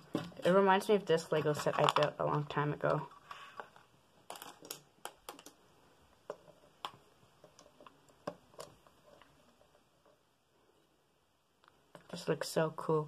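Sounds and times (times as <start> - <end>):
plastic toy pieces clicking: 4.3 - 5.6.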